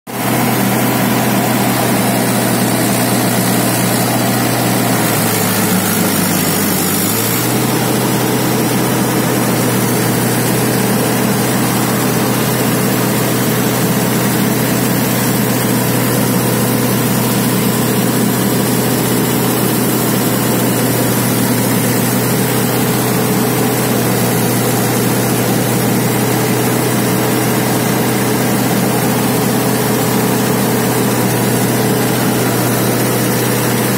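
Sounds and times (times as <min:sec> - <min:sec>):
threshing machine noise: 0:00.1 - 0:33.9
tractor diesel engine running: 0:00.1 - 0:33.9.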